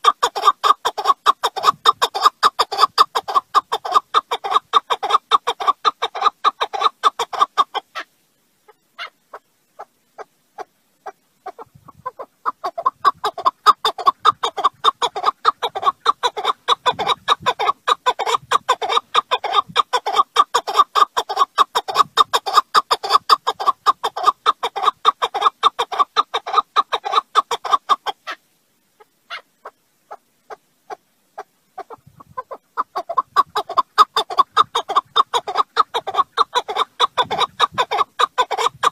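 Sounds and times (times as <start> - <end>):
partridge calling: 0.0 - 28.0, 29.0 - 38.9.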